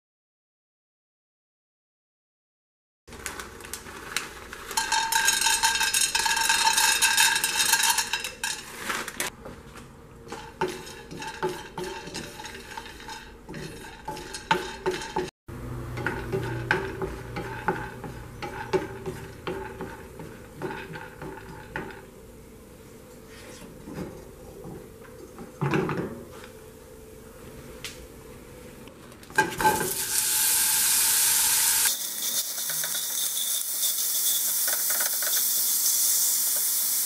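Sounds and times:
nuts rattling into pan: 0:04.7 - 0:08.7, 0:29.6 - 0:36.6
spatula scraping pan: 0:10.3 - 0:22.1, 0:31.2 - 0:36.7.

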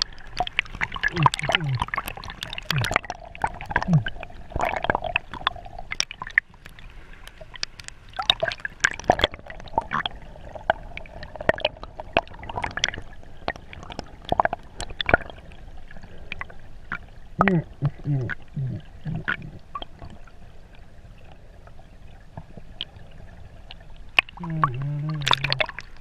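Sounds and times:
irregular clicks and pops: 0:00.0 - 0:10.1, 0:24.2 - 0:26.0
water sloshing and gurgling: 0:00.0 - 0:26.0.

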